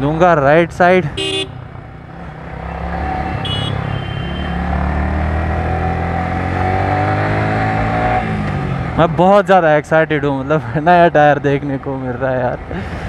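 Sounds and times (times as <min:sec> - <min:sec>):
motorcycle engine accelerating: 0:01.2 - 0:09.1.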